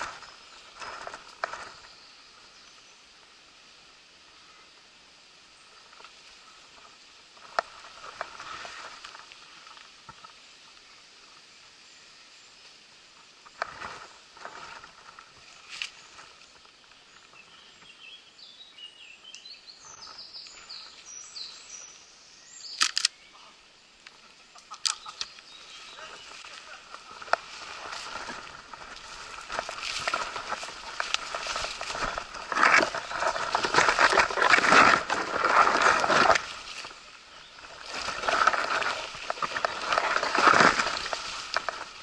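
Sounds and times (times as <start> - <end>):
birds chirping: 0.0 - 3.2, 4.3 - 42.0
sharp clicks and snaps: 22.8 - 23.2, 24.0 - 25.4.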